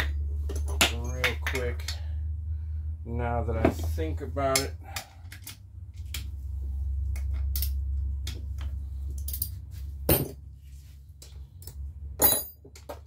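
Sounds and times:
steady low hum: 0.0 - 13.0
metal clinks of bolts and tools: 12.2 - 13.0.

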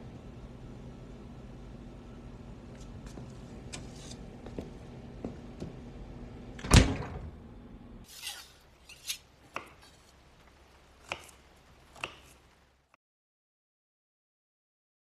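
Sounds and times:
low hum: 0.0 - 8.1.

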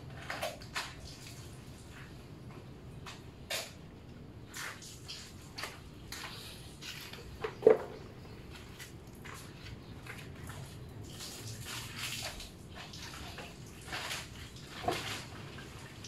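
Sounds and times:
water splashing in bucket: 8.6 - 16.0.

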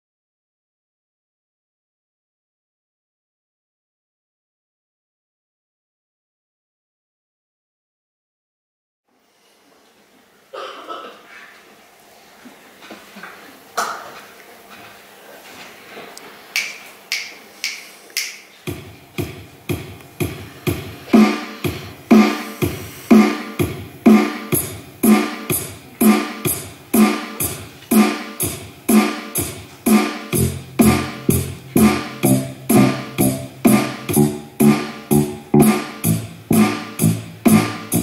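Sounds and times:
low bass tone: 30.4 - 38.0
pulsing electronic hits: 30.4 - 38.0.

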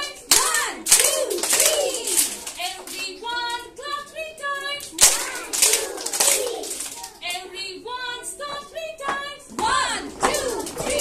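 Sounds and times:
hand clap: 0.3 - 3.1, 4.8 - 7.2.

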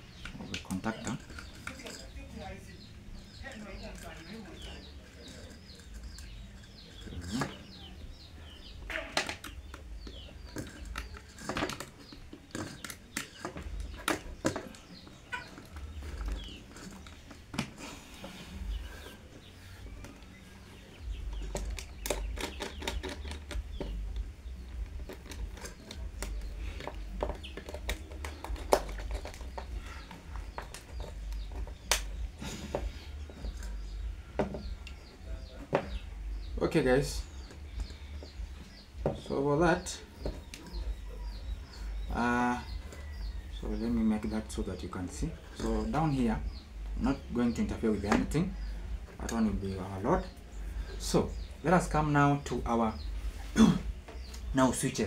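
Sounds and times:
wires clicking and rustling: 0.0 - 43.6
faint bird calls: 0.0 - 55.0.

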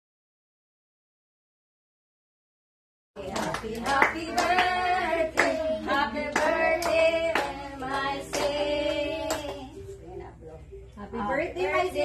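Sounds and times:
people clapping along: 3.2 - 9.8
group of people singing: 3.2 - 9.9, 11.2 - 12.0.

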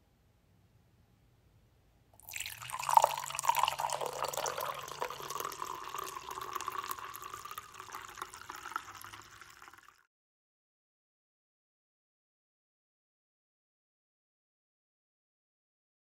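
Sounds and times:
wine pouring into a glass: 2.2 - 10.1.

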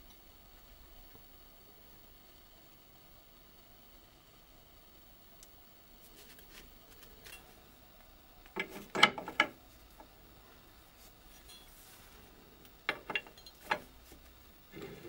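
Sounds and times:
metallic clacks in a vise: 8.5 - 9.6, 12.9 - 13.9.

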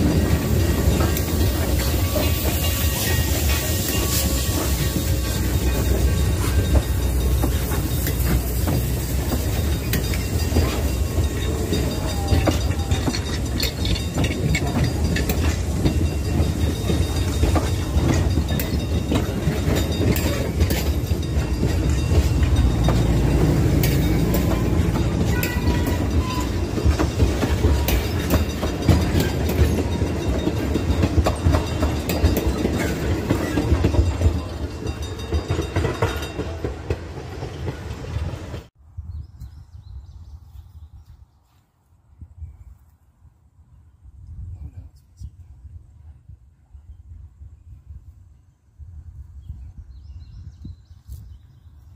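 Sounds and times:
steel wheels clacking over rail joints: 0.0 - 38.7
train cars rumbling past: 0.0 - 38.8.

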